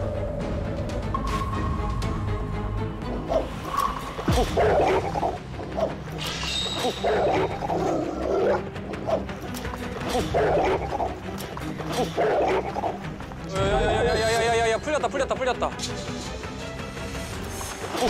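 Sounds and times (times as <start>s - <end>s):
tense background music: 0.0s - 18.0s.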